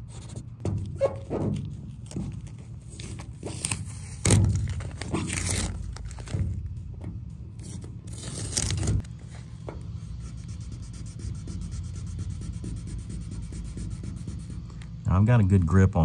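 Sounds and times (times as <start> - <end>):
hand wet-sanding rasping strokes: 10.1 - 14.7.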